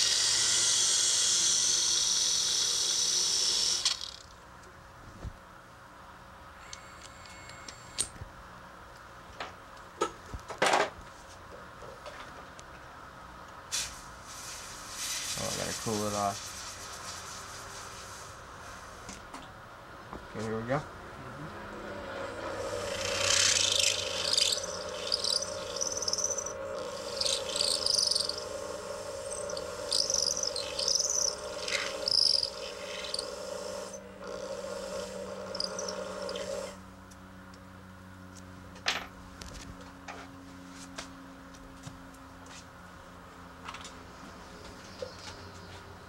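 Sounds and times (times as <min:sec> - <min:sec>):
rotary tool humming: 0:00.0 - 0:04.4, 0:21.6 - 0:37.0
bit grinding acrylic with squeals: 0:06.6 - 0:08.1, 0:22.0 - 0:36.8.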